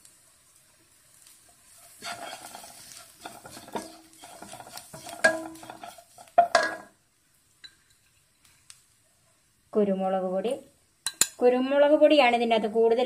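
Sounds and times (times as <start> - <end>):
wooden spatula scraping a pan: 1.5 - 6.9
spatula knocking against pan: 3.2 - 6.9.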